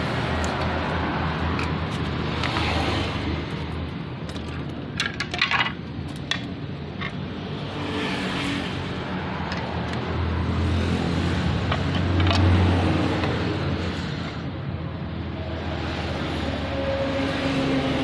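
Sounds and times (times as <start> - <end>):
motor vehicle rumble: 0.0 - 18.0
wooden pieces clicking on concrete: 1.4 - 7.2, 11.6 - 13.4.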